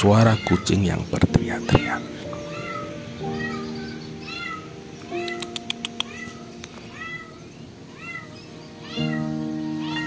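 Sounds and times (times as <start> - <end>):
cats meowing: 0.0 - 10.0
sharp clicks: 5.0 - 6.8.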